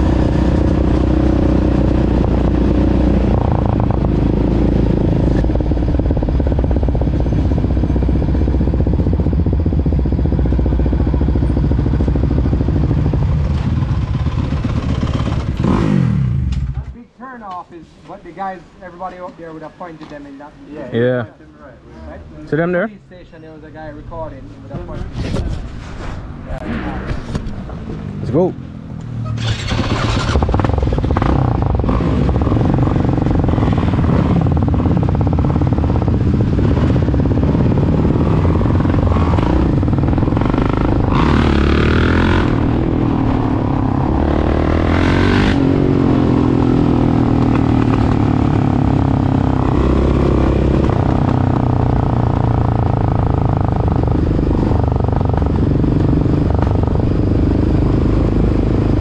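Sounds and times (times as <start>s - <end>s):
quad and dirt bike engines revving: 0.0s - 17.0s, 27.6s - 59.0s.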